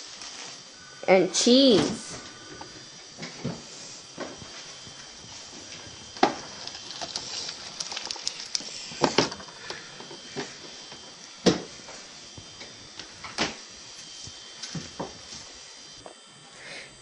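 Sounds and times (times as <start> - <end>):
knocks and clatter of food items: 6.2 - 10.5.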